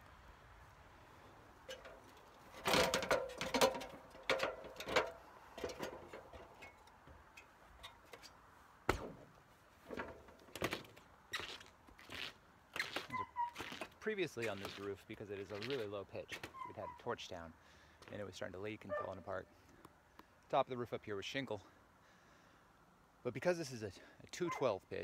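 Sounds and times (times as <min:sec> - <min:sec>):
knocks of climbing a ladder: 0:01.7 - 0:08.2.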